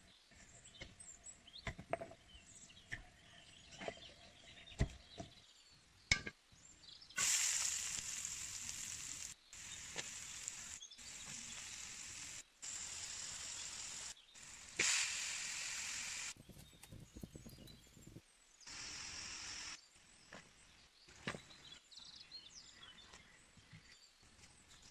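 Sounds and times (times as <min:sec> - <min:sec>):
food sizzling in wok: 0:07.2 - 0:16.4, 0:18.7 - 0:19.8.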